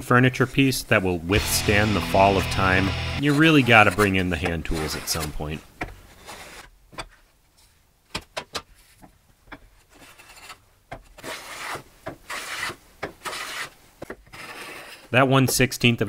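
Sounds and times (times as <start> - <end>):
hand plane hissing strokes: 11.2 - 13.7.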